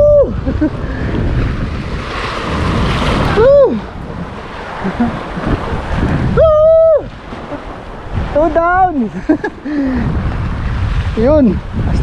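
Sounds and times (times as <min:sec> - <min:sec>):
waves washing against sea wall: 0:00.0 - 0:12.0
wind buffeting microphone: 0:00.0 - 0:12.0.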